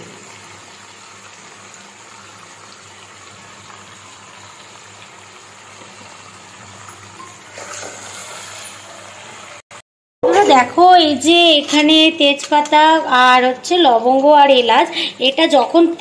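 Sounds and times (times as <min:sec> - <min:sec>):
chicken sizzling in hot oil: 0:00.0 - 0:09.6.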